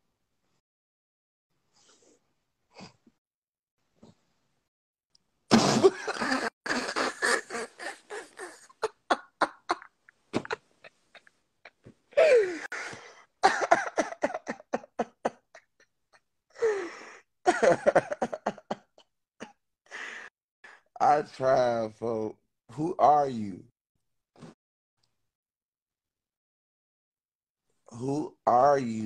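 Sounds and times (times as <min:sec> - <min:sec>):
person laughing hard: 0:05.5 - 0:15.7, 0:17.5 - 0:19.5.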